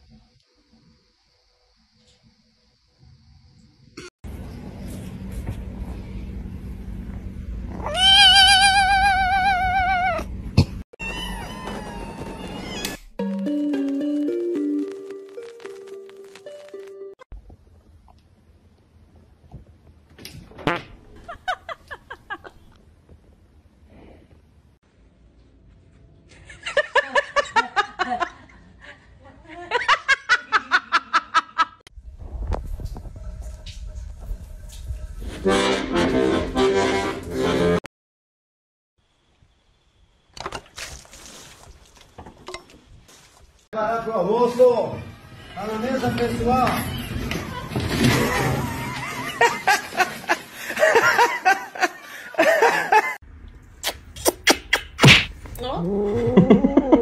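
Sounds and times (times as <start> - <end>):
many cats meowing: 7.8 - 10.2
person laughing: 48.7 - 53.2, 56.0 - 57.0.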